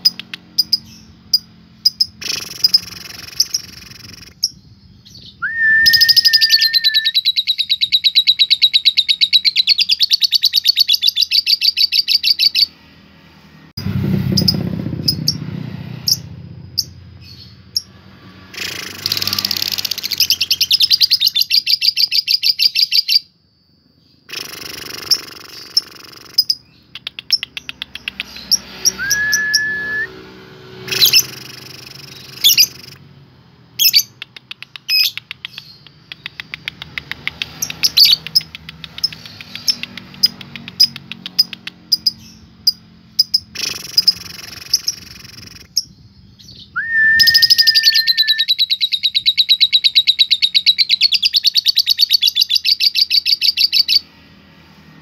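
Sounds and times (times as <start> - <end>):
sharp bird chirps: 0.0 - 12.8, 14.2 - 54.1
short rising whistles: 5.2 - 8.4, 24.4 - 33.0, 46.4 - 49.0.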